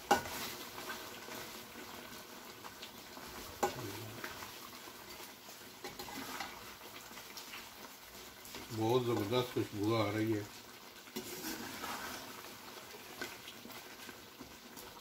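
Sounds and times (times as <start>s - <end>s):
sauce sizzling: 0.0s - 15.0s
metal spoon scraping a pot: 5.8s - 6.6s, 11.2s - 12.3s.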